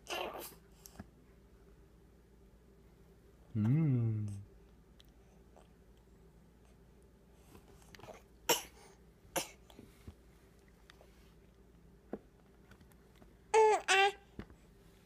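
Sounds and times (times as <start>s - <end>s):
baby coughing: 8.5s - 9.6s.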